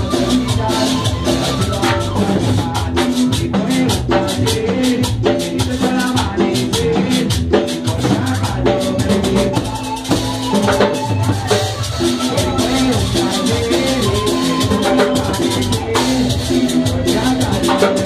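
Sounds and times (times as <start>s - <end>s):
band playing cumbia: 0.0s - 18.0s
held keyboard chords: 7.6s - 18.0s.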